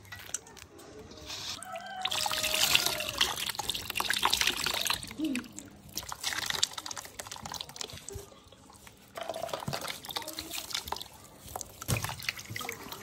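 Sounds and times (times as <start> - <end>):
water pouring from a jug: 1.6 - 13.0
water splashing into a basin: 1.7 - 13.0.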